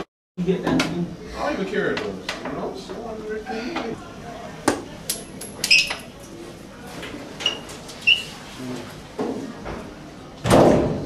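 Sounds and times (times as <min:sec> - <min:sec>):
short high squeaks: 0:07.4 - 0:08.3.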